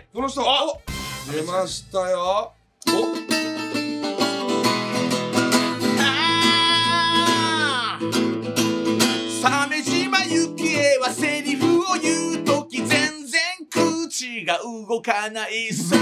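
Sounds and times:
person singing: 2.8s - 3.3s, 5.9s - 8.2s, 9.3s - 16.0s
acoustic guitar strumming: 2.8s - 14.2s, 15.7s - 16.0s.

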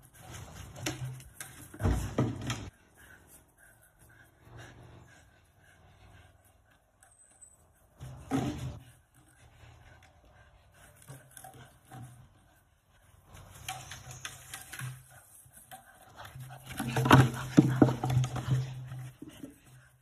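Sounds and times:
dog breathing: 0.0s - 20.0s.

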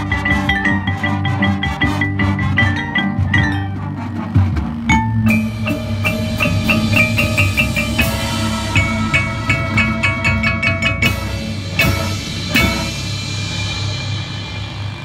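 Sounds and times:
marimbas and vibraphone notes: 0.0s - 15.0s
low held tones: 4.9s - 15.0s
loud accented crashes: 5.3s - 15.0s.

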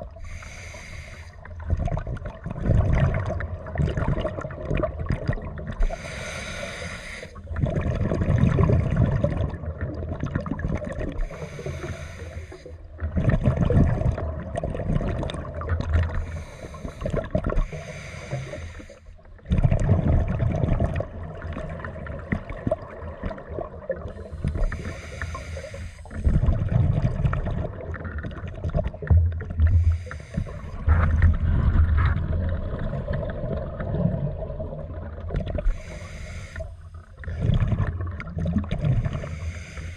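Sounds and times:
bubbling exhale: 0.0s - 34.7s, 35.3s - 39.9s
regulator inhale hiss: 0.2s - 1.6s, 5.8s - 7.5s, 11.2s - 12.9s, 16.1s - 19.1s, 24.2s - 26.3s, 29.7s - 30.9s, 35.7s - 37.1s, 39.1s - 39.9s.

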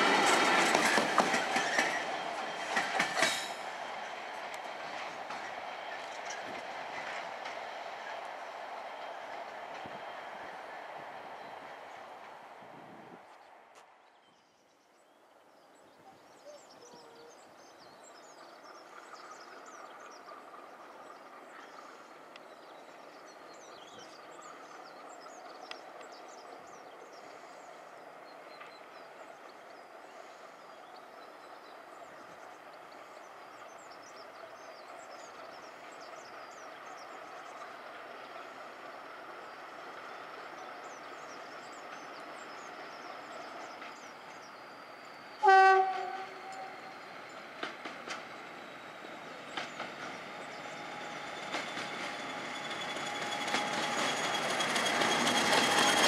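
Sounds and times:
diesel locomotive engine drone: 0.0s - 14.0s, 15.8s - 56.0s
birds chirping: 13.3s - 56.0s.

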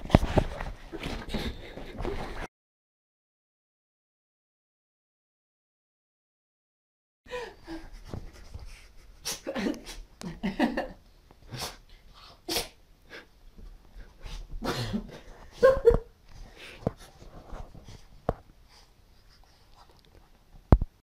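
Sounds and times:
bedding rustling: 0.0s - 2.5s.

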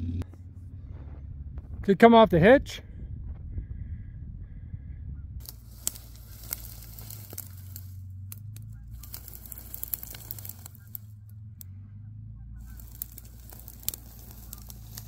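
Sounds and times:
low engine hum: 0.0s - 15.0s
crackles and clicks: 5.4s - 15.0s.

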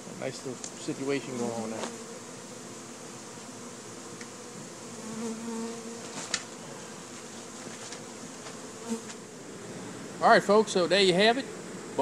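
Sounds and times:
bees buzzing: 0.0s - 12.0s.

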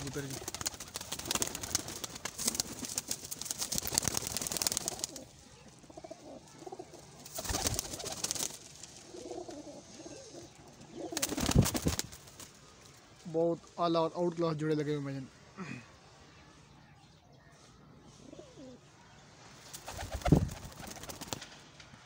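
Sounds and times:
wings flapping: 0.0s - 5.9s, 6.7s - 12.7s, 19.6s - 21.8s
pigeons cooing softly: 0.0s - 12.1s, 17.4s - 21.4s.

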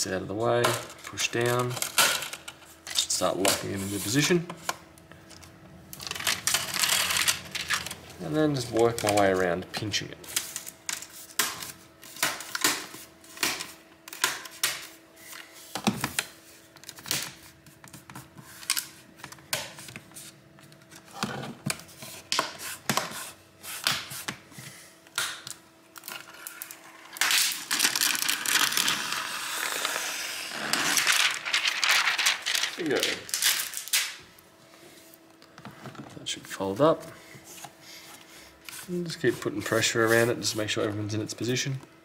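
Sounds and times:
protective film peeling: 26.0s - 34.2s.

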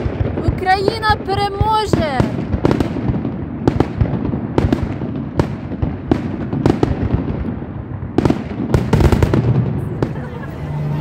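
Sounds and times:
fireworks bangs: 0.0s - 11.0s
continuous low rumble: 9.2s - 11.0s.

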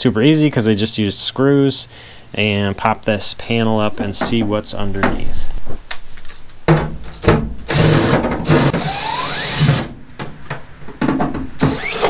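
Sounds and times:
power drill running: 7.7s - 9.8s, 11.6s - 12.0s.

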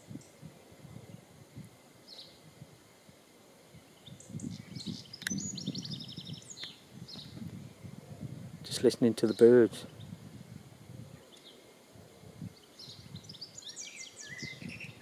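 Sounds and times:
songbirds chirping: 0.0s - 15.0s
bird trill: 12.6s - 15.0s.

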